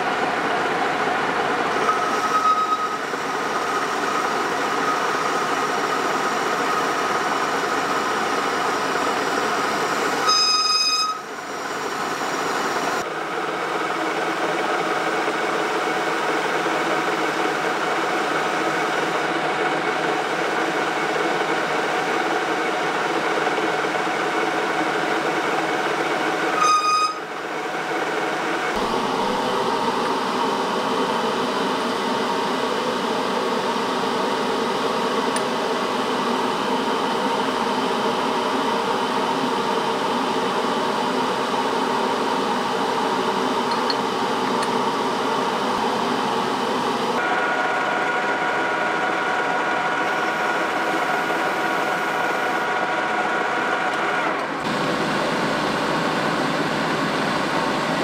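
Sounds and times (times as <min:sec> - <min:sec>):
lathe running hum: 0:00.0 - 0:58.0
short high beep: 0:01.8 - 0:03.0, 0:10.2 - 0:11.3, 0:26.6 - 0:27.2.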